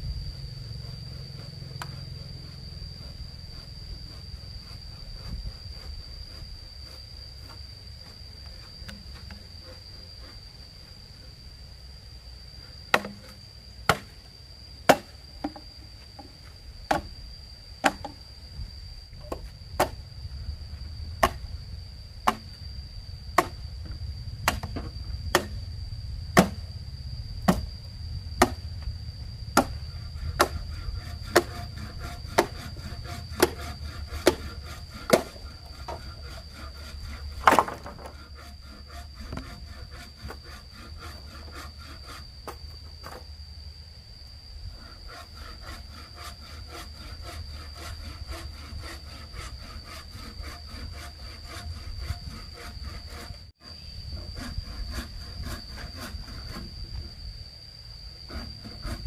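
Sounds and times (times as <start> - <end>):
high-pitched insect drone: 0.0 - 59.0
tool striking wood: 12.9 - 13.3, 17.8 - 18.2, 22.2 - 22.4, 24.4 - 25.6, 26.4 - 26.6, 30.4 - 30.6, 37.4 - 38.2.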